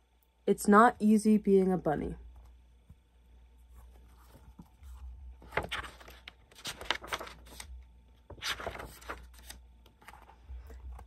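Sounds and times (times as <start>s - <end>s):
book pages turning: 3.6s - 11.0s.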